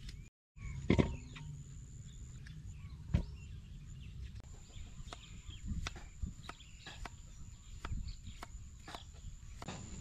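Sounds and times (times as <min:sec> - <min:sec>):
birds chirping: 0:00.0 - 0:10.0
knife chopping on wooden board: 0:05.8 - 0:07.2, 0:07.8 - 0:09.8.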